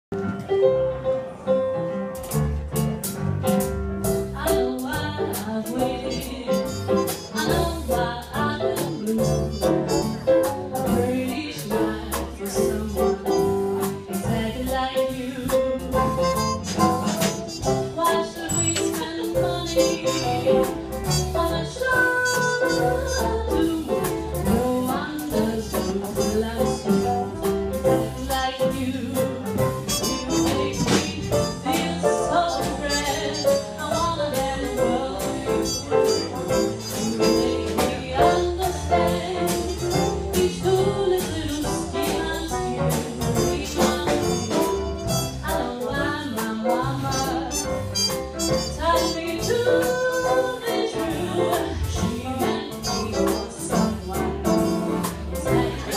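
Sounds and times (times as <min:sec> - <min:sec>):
live band playing: 0:00.1 - 0:55.9
woman singing into microphone: 0:04.4 - 0:10.2, 0:10.8 - 0:13.5, 0:14.2 - 0:16.4, 0:17.9 - 0:47.8, 0:48.6 - 0:54.8, 0:55.4 - 0:55.9
saxophone: 0:06.0 - 0:08.2, 0:16.0 - 0:24.1, 0:29.8 - 0:38.5, 0:43.4 - 0:45.7, 0:47.0 - 0:55.9.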